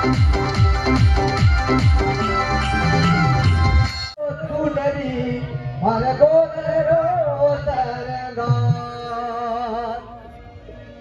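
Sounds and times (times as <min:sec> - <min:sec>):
instrumental accompaniment: 0:00.0 - 0:04.2
man singing ornamented melody: 0:04.2 - 0:10.4
drum: 0:08.4 - 0:09.1.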